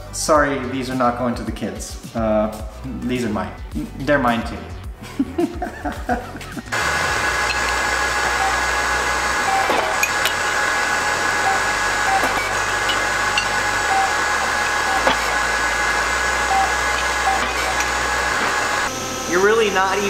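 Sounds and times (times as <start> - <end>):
machine whining tones: 6.7 - 20.0
shop machinery running: 6.7 - 20.0.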